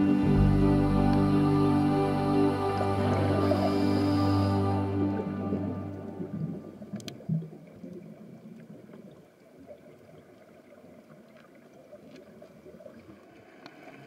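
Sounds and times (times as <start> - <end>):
background music: 0.0 - 7.0
muffled underwater gurgling: 0.0 - 9.0.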